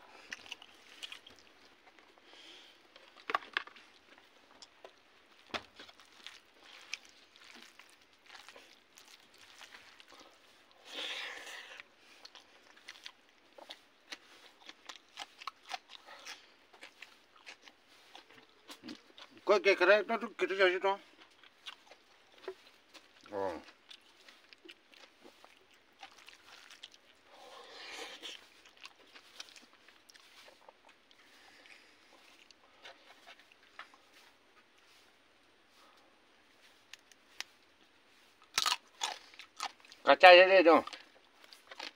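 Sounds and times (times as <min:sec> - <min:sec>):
chewing with wet mouth clicks: 0:00.1 - 0:02.3, 0:02.9 - 0:19.4, 0:21.1 - 0:27.3, 0:28.0 - 0:34.0, 0:38.4 - 0:40.0, 0:40.8 - 0:41.9
fingers squeezing rice: 0:05.4 - 0:18.4.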